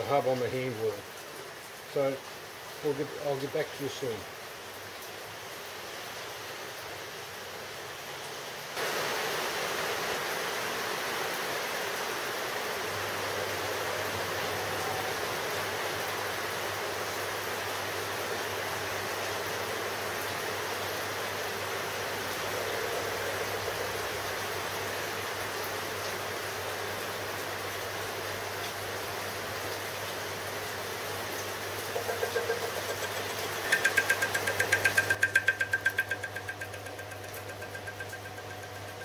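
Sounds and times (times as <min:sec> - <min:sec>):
lathe whirring: 0:31.9 - 0:39.0.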